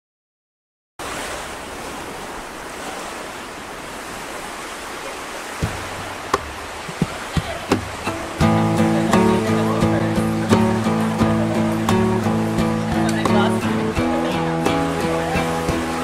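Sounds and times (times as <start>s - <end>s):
ocean surf: 1.0s - 16.0s
acoustic guitar music: 5.7s - 16.0s.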